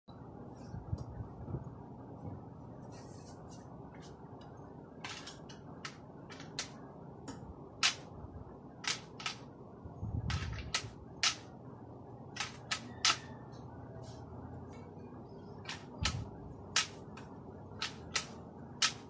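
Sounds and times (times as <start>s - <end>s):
low handling rumble: 0.1s - 4.9s.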